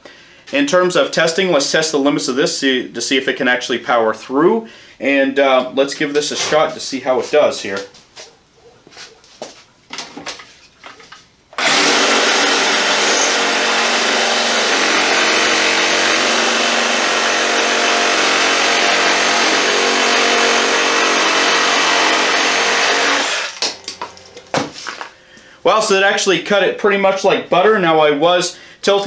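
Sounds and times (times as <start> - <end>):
reciprocating saw cutting log: 11.6 - 23.6.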